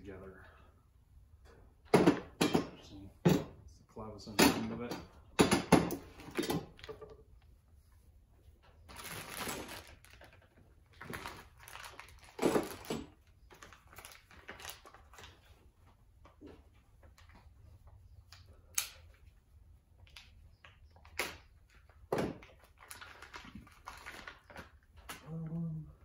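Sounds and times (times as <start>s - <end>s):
plastic bags rustling and crinkling: 8.6s - 17.3s, 20.1s - 25.5s.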